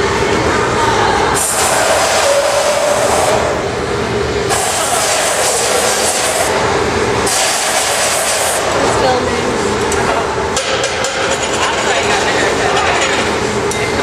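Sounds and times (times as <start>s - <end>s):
furnace burners running: 0.0s - 14.0s
gas torch flame rushing: 1.4s - 3.7s, 4.4s - 8.9s.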